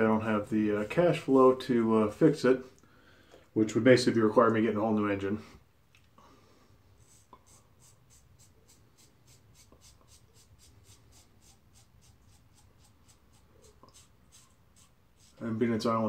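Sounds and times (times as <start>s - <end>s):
razor scraping stubble: 7.0s - 15.9s.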